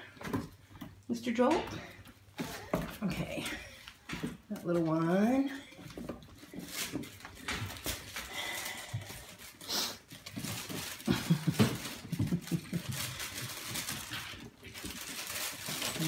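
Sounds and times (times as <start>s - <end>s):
claws scrabbling on plastic: 5.8s - 16.0s.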